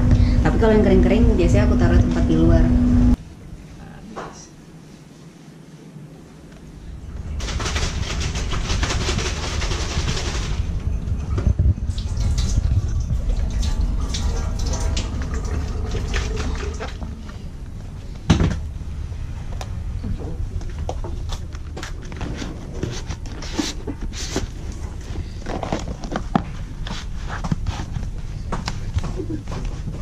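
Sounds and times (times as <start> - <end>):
tap water running into sink: 12.0 - 17.1
cartons crinkling: 25.2 - 28.2.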